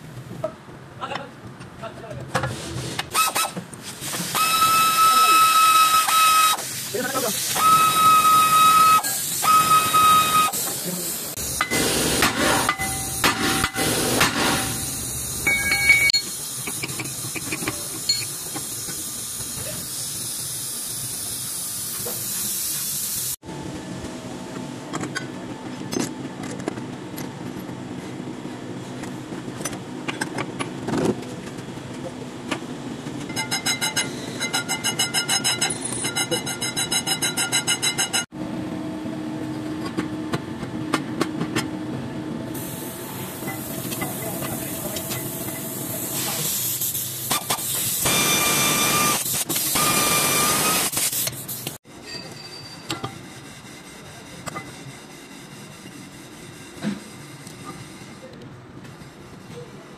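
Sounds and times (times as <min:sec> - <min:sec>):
air tool hissing and whining: 0:03.1 - 0:23.4, 0:42.5 - 0:51.8.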